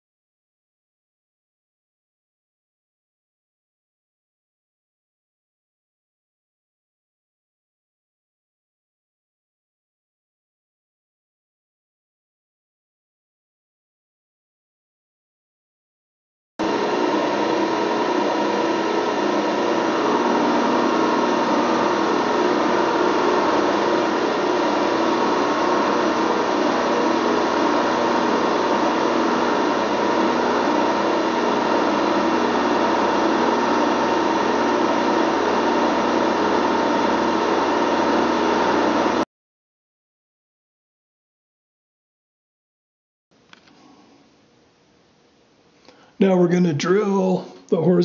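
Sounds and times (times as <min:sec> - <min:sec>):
milling machine cutting steel: 0:16.7 - 0:39.2.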